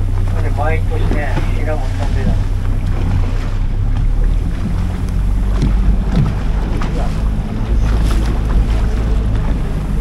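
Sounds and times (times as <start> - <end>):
boat engine humming: 0.0 - 10.0
wind buffeting microphone: 0.0 - 10.0.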